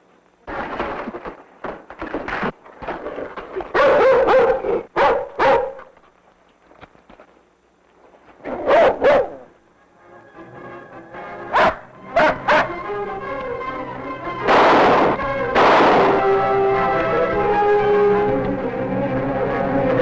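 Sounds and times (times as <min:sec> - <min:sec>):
dog barking: 0:03.7 - 0:05.9, 0:08.4 - 0:09.5, 0:11.5 - 0:12.8.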